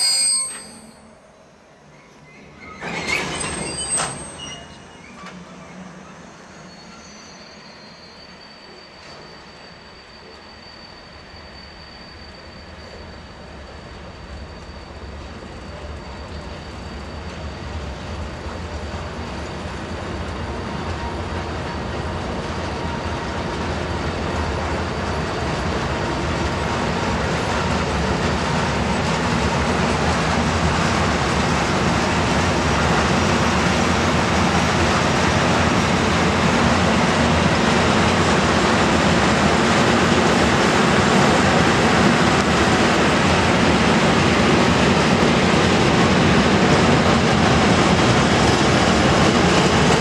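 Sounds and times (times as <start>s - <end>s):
high wheel squeal: 0.0s - 1.2s, 1.9s - 18.4s
freight train wheels rumbling on rail: 1.8s - 50.0s.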